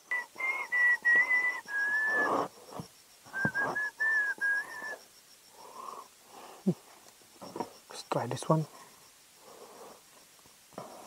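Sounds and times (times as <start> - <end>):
insect chirping: 0.0 - 11.0
person whistling a tune: 0.1 - 2.4, 3.3 - 5.0.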